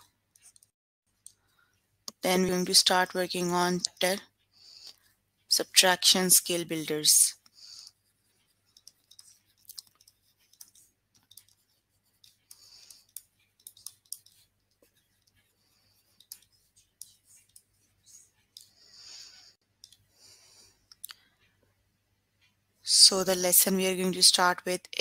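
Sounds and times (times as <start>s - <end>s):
stylus clicking on a screen: 0.3s - 21.6s
scratchy stylus strokes: 5.8s - 19.6s.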